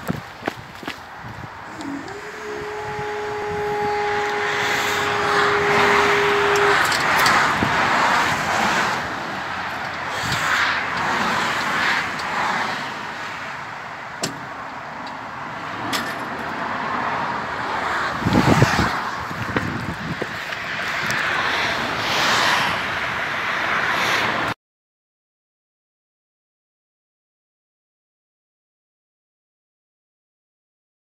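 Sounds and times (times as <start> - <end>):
rushing noise: 0.0 - 24.6
barrier motor whine: 1.5 - 10.4.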